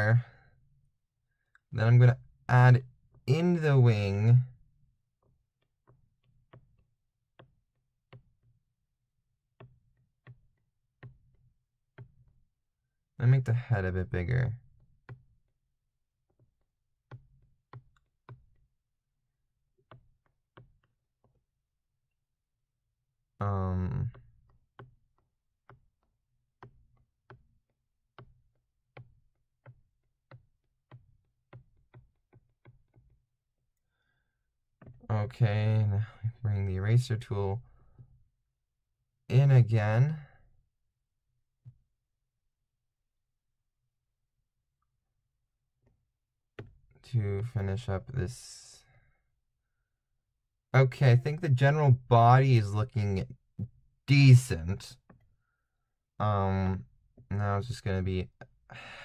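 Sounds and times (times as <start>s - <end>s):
stylus tapping on tablet: 5.2s - 8.6s, 9.5s - 12.4s, 14.8s - 15.5s, 16.3s - 18.7s, 24.1s - 33.3s, 34.8s - 35.1s, 46.6s - 46.8s.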